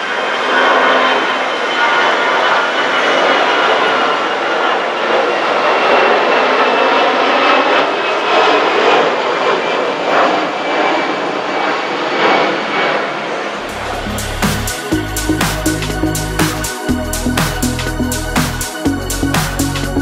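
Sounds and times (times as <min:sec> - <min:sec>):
jet engines rushing: 0:00.0 - 0:20.0
music with deep bass and beat: 0:13.6 - 0:20.0.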